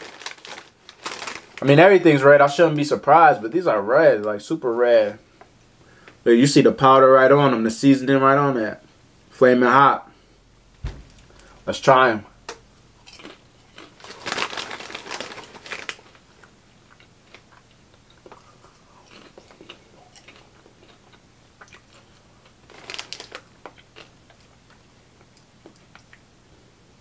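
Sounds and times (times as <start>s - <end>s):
chewing and crunching popcorn: 0.0s - 1.8s, 13.0s - 26.2s.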